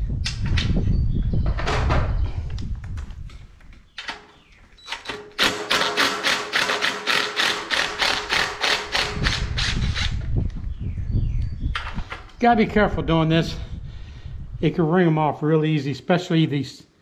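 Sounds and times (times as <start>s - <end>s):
impact driver whining and rattling: 4.8s - 10.3s.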